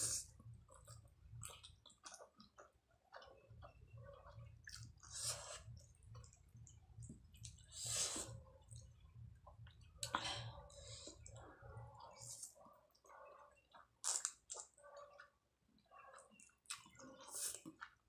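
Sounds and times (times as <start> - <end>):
person chewing: 0.0 - 6.4, 13.6 - 18.0.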